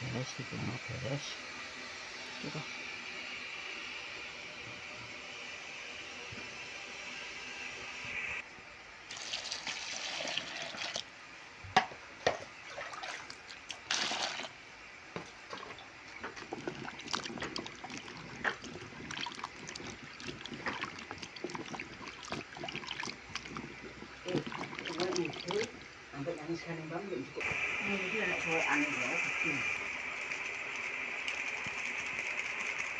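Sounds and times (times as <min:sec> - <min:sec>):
water sloshing in plastic basin: 0:12.6 - 0:14.6, 0:15.3 - 0:25.9.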